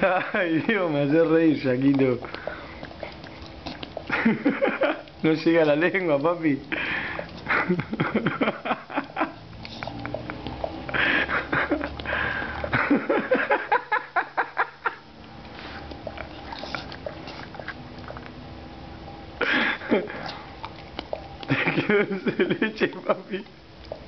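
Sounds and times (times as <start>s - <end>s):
dog licking and smacking lips: 0.0s - 14.2s, 14.8s - 24.0s
breathy puffs: 2.2s - 4.1s, 6.7s - 7.7s, 10.8s - 12.9s.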